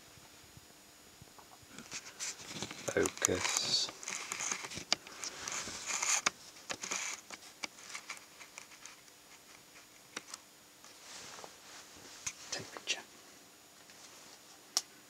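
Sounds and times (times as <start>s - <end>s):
short rustles: 1.8s - 8.9s, 10.9s - 12.8s.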